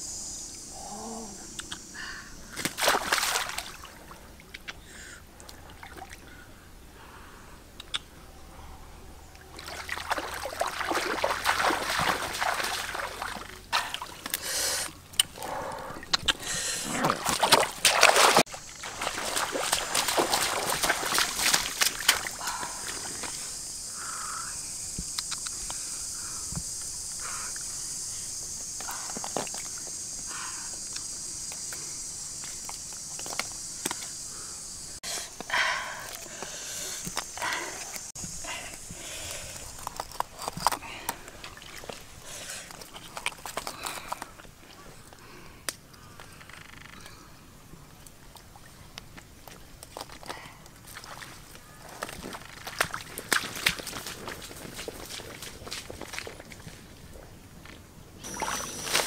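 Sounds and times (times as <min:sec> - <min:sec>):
high-pitched insect drone: 0:00.0 - 0:03.8, 0:18.4 - 0:40.0, 0:58.2 - 0:59.0
squelches in wet mud: 0:01.6 - 0:06.6, 0:09.3 - 0:59.0
water splashing from wading: 0:02.5 - 0:04.5, 0:09.4 - 0:14.3, 0:17.0 - 0:23.4, 0:58.2 - 0:59.0.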